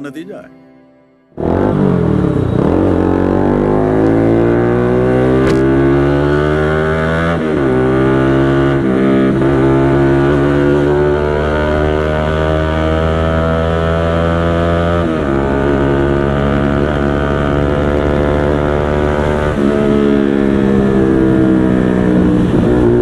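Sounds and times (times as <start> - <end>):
motorcycle engine accelerating: 1.4 - 23.0.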